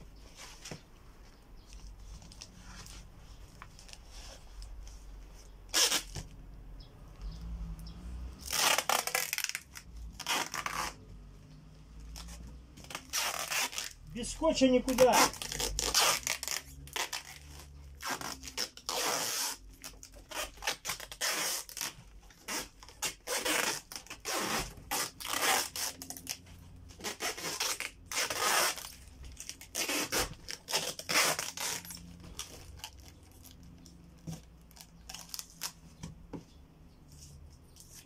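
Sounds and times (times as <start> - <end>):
packing tape pulled off roll: 5.7 - 6.3, 8.4 - 11.0, 12.1 - 14.0, 14.9 - 35.8.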